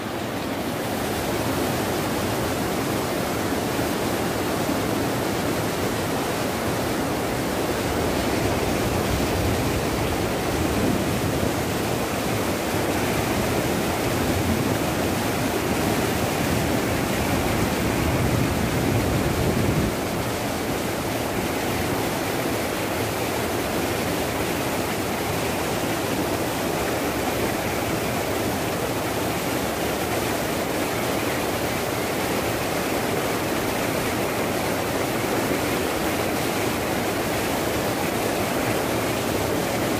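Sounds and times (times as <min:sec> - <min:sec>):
floodwater rushing over boulders: 0:00.0 - 0:39.9.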